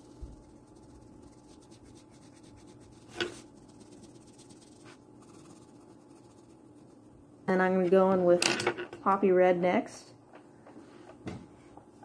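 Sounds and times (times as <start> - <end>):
colored pencil scratching on paper: 0.0 - 7.0.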